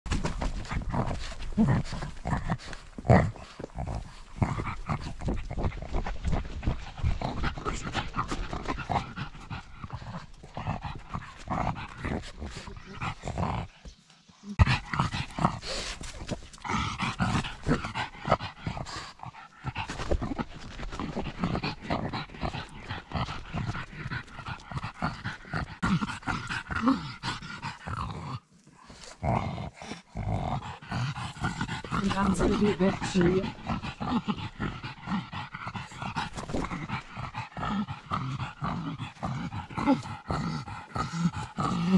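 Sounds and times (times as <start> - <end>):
dog breathing hard and snuffling: 0.1 - 41.9.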